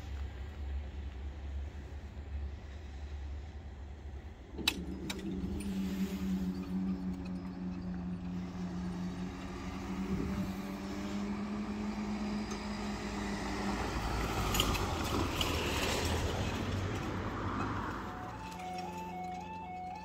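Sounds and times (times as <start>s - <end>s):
tyres clunking over rails: 4.4s - 20.0s
barrier machines humming: 4.5s - 13.8s.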